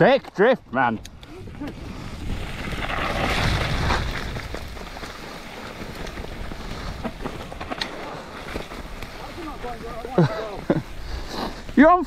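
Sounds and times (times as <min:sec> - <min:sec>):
bike clicks and rattles: 0:00.0 - 0:12.0
bike tyre noise on dirt: 0:00.0 - 0:12.0
wind rushing over microphone: 0:01.0 - 0:05.0.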